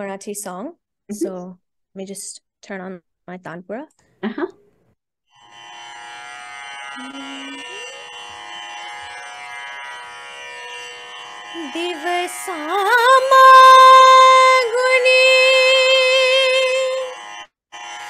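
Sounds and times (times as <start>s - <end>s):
tanpura drone: 5.3s - 18.0s
woman singing: 11.6s - 17.2s.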